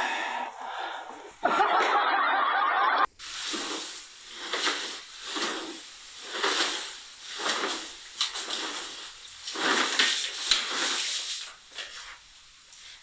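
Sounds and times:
loud steady hiss: 0:03.1 - 0:13.0.

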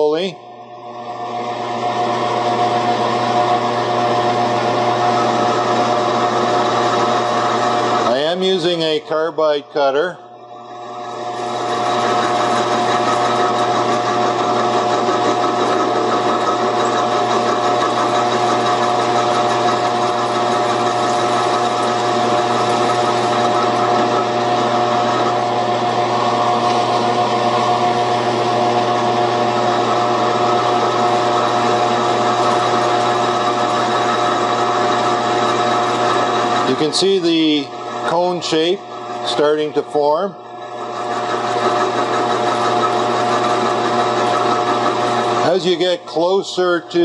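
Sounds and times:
metal lathe humming: 0:00.0 - 0:47.0.

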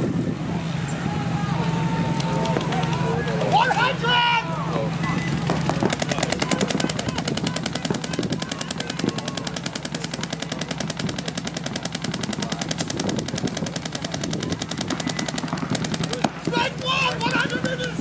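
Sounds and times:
paintball markers firing rapidly: 0:05.4 - 0:18.0.

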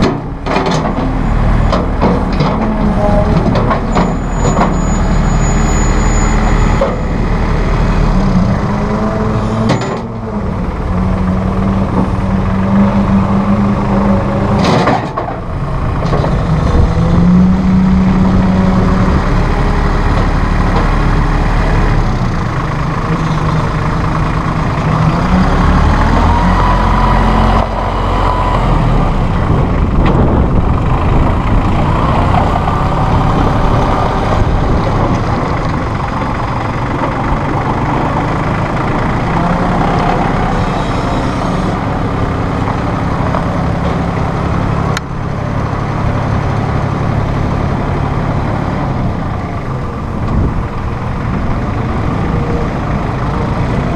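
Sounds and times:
sharp clicks and knocks: 0:00.0 - 0:04.7
tractor diesel engine: 0:00.0 - 0:53.9.

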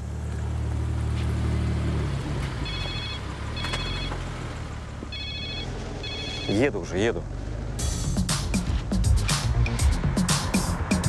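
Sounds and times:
low engine hum: 0:00.0 - 0:11.0
phone electronic ringtone: 0:02.7 - 0:04.2, 0:05.1 - 0:06.7.

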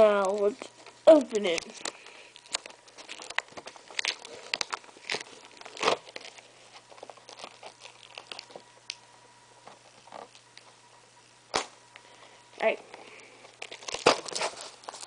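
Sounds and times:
plastic packaging crinkling and tearing: 0:00.0 - 0:09.0, 0:09.6 - 0:10.7, 0:13.4 - 0:15.0.

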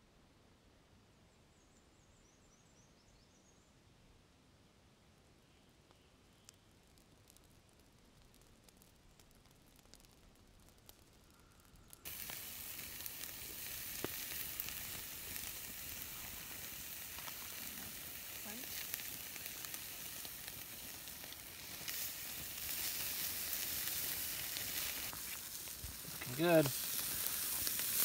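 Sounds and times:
meat sizzling on a grill: 0:08.2 - 0:28.0.

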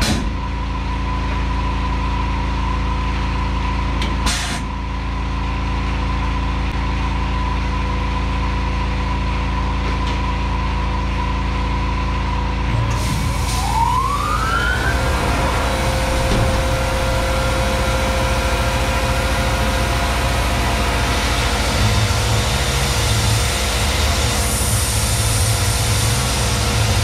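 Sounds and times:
mill spindle whine: 0:00.0 - 0:27.0.

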